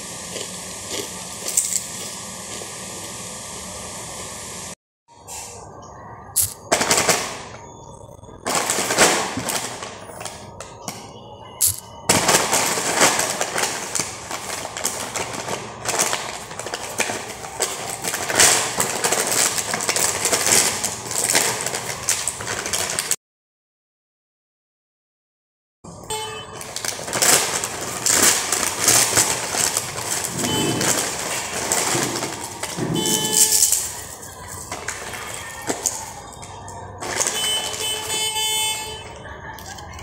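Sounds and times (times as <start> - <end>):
plastic snack packet crinkling: 6.4 - 6.7, 13.0 - 23.2, 26.6 - 37.4.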